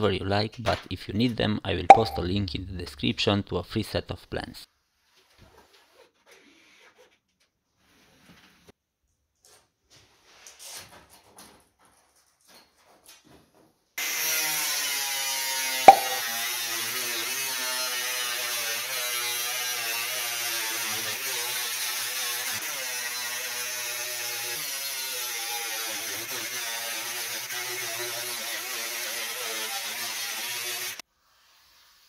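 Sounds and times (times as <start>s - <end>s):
sharp loud knock: 15.9s - 16.2s
power tool cutting sheet metal: 16.9s - 31.0s.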